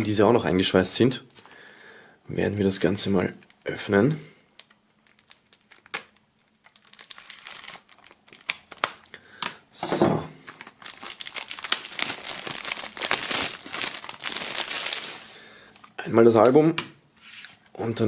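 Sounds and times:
plastic film crinkling: 2.8 - 9.2, 10.4 - 15.9.

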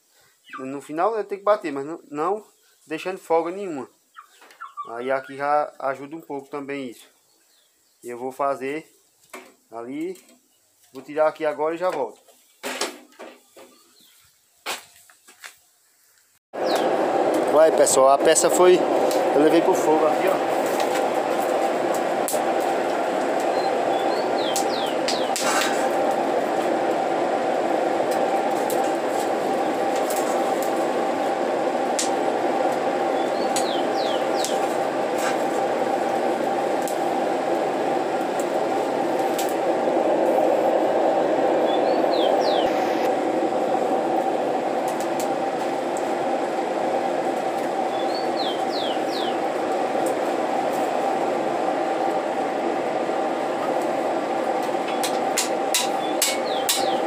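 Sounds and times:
small bird chirping: 0.4 - 0.8, 3.9 - 5.4, 23.5 - 25.4, 33.2 - 34.6, 41.7 - 43.0, 47.9 - 49.4, 56.0 - 57.0
forge fire rushing: 16.6 - 57.0.

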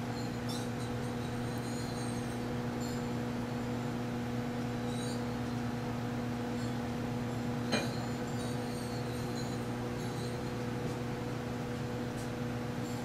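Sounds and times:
microwave oven hum: 0.0 - 13.0.

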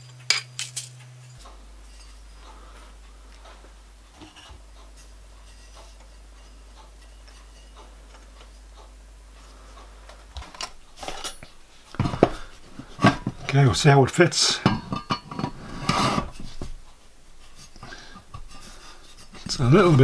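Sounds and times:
metal parts clinking: 0.0 - 1.4, 10.5 - 11.5
low hum: 0.0 - 20.0.

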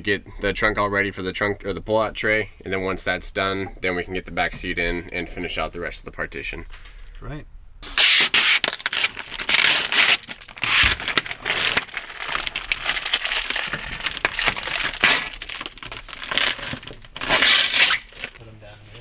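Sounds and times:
paper rustling and crumpling: 8.1 - 18.4.

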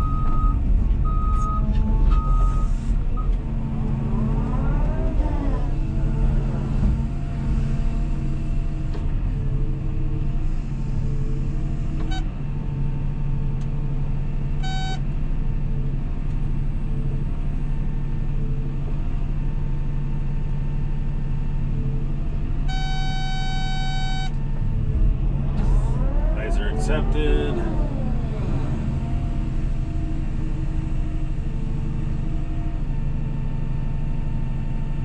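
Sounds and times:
diesel engine running: 0.0 - 35.0
electronic beeps: 22.7 - 24.3.

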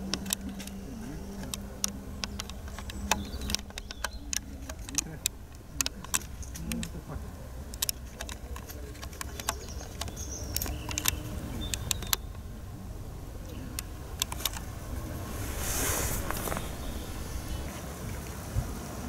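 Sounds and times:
sharp clicks: 0.0 - 7.0, 7.6 - 12.4, 13.4 - 15.6
low rumble: 10.4 - 18.2
high chirps: 14.7 - 17.7.

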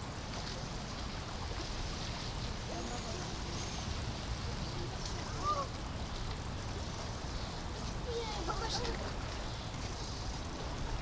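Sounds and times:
low rumble and hiss: 0.0 - 11.0
distant people's voices: 2.4 - 11.0.

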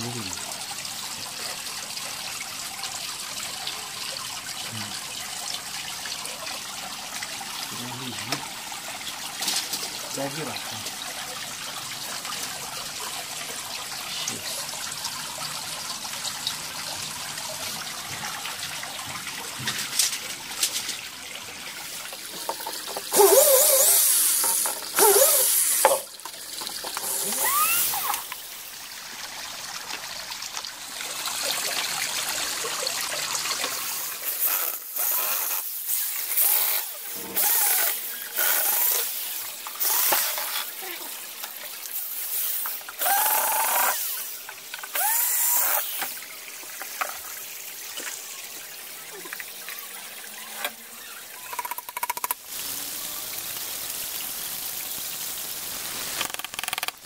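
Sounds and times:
cordless drill whining: 23.1 - 24.0, 25.0 - 26.0, 27.0 - 28.3, 43.0 - 44.0, 45.0 - 46.0.

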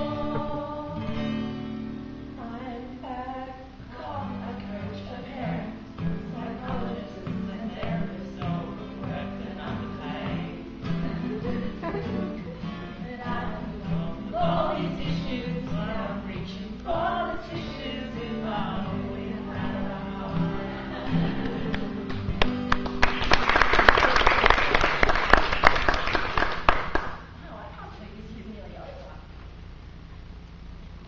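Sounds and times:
voices singing together: 0.0 - 1.6, 2.4 - 22.4
acoustic guitar strumming: 0.0 - 23.4
audience applause: 21.2 - 27.3.

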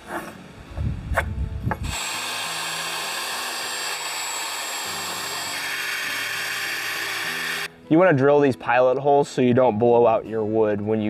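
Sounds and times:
cordless drill boring into wood: 1.8 - 7.7.

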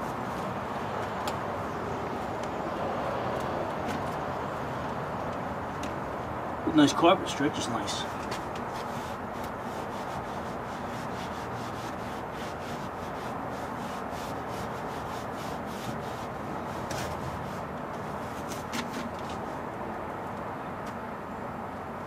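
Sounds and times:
gloved hands rubbing carpet: 8.6 - 18.6.

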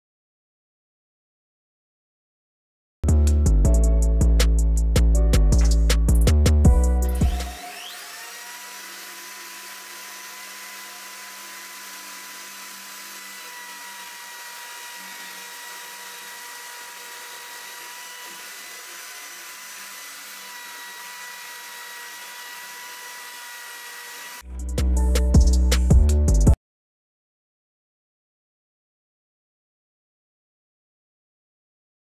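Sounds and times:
electric motor high whine: 7.1 - 24.4.

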